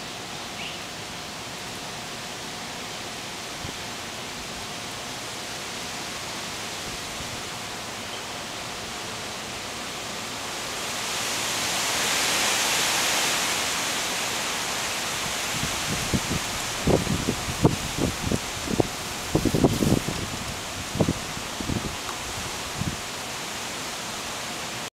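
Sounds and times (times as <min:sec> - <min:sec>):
wind rushing through trees: 0:00.0 - 0:24.9.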